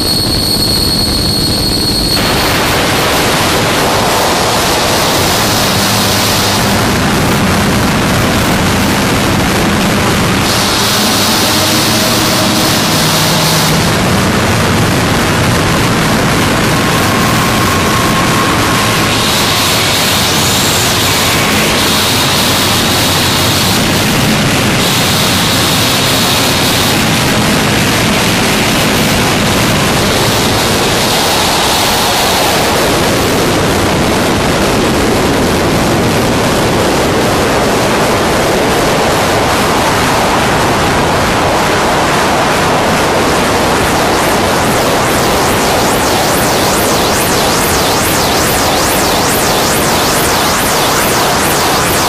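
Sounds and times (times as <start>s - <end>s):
dense static noise: 0.0s - 52.0s
faint high tone: 10.4s - 14.8s.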